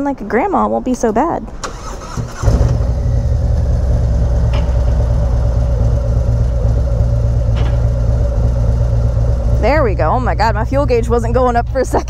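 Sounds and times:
motorcycle engine idling: 2.3s - 12.0s.

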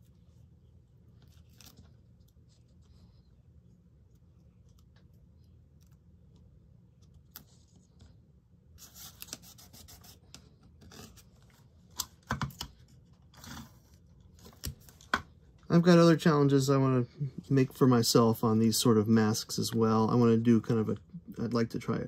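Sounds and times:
low steady hum: 0.0s - 22.0s
fingers rubbing tape on paper: 8.8s - 11.2s.

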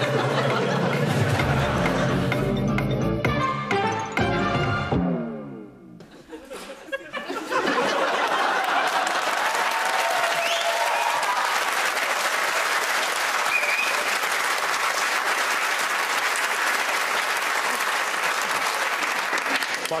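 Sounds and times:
audience applauding: 0.0s - 2.2s, 7.7s - 20.0s
cheers and whoops: 8.6s - 12.0s.

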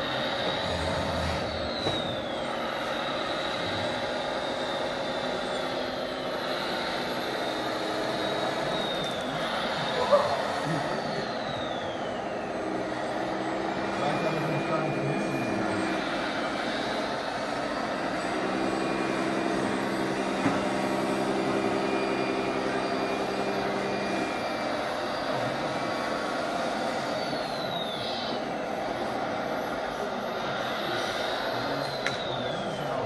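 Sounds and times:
high electric motor whine: 0.0s - 33.0s
steady engine-like hum: 0.0s - 33.0s
click: 31.8s - 32.2s.

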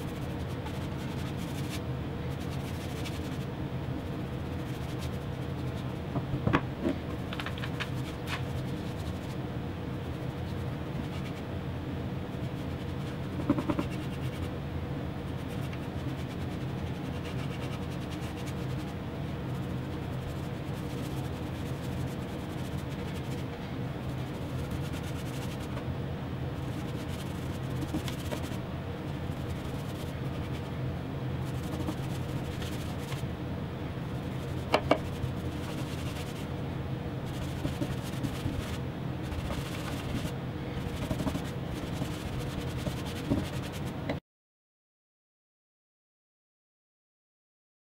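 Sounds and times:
paintbrush scratching on plywood: 0.0s - 6.0s, 7.6s - 11.5s, 12.3s - 14.6s, 15.3s - 25.8s, 26.6s - 30.8s, 31.4s - 33.2s, 34.1s - 36.5s, 37.2s - 44.0s.

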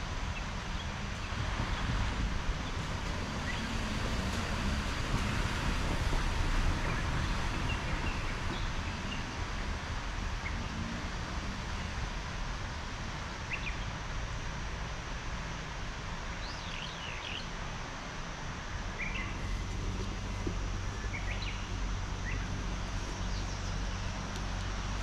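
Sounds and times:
wind buffeting microphone: 0.0s - 10.7s.

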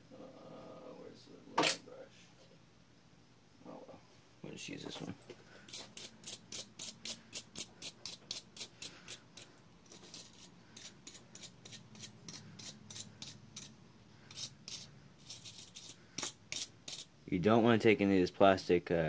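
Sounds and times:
hand brush scrubbing: 5.8s - 13.7s.

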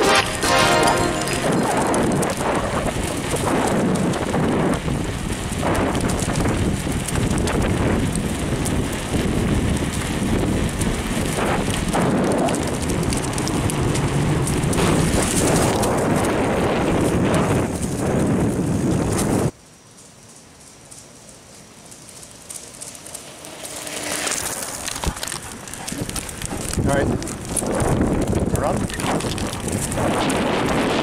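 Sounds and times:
wind on microphone: 1.2s - 19.6s, 24.8s - 31.0s
bicycle rattling: 1.2s - 31.0s.

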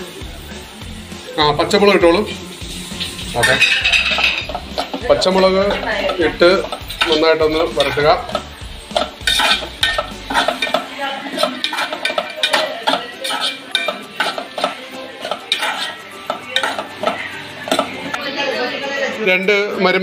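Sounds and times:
light sizzle: 0.0s - 18.2s
utensil scraping metal pot: 2.8s - 18.2s.

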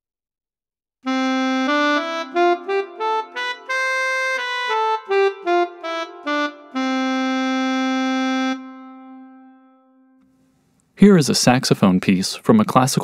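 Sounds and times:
saxophone solo melody: 1.0s - 10.4s.

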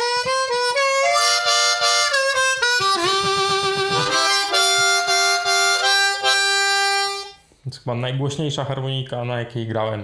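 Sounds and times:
harmonica playing chords and notes: 0.0s - 7.5s.

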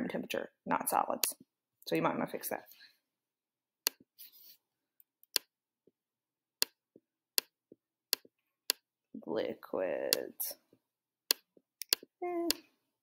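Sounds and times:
computer mouse clicking: 11.3s - 12.6s.

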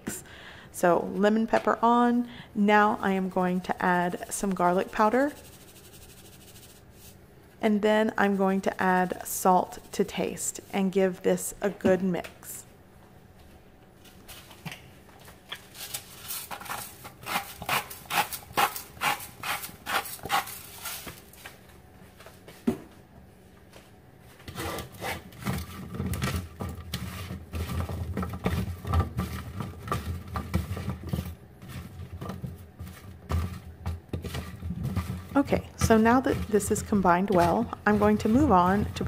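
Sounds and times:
asparagus scraping on metal pan: 34.2s - 39.0s.

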